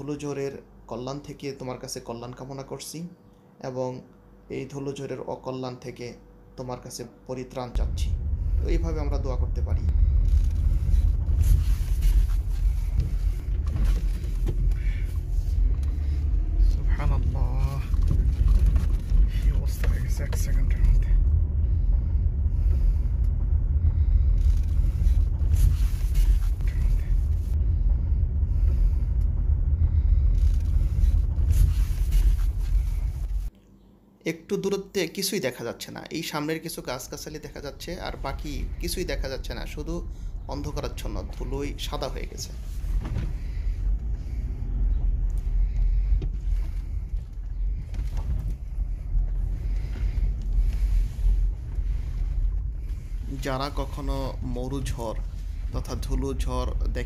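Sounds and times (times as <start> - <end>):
wind buffeting microphone: 7.8 - 33.5.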